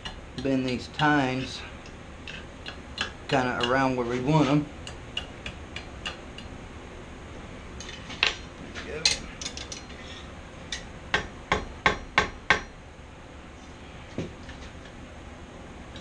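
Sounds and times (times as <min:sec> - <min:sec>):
hammer striking hot steel on anvil: 0:02.3 - 0:03.9, 0:10.7 - 0:12.8.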